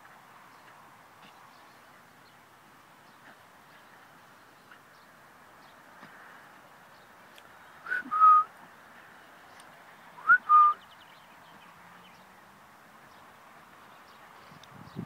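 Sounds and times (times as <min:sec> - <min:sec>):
person whistling to a dog: 0:07.9 - 0:08.5, 0:10.2 - 0:10.8.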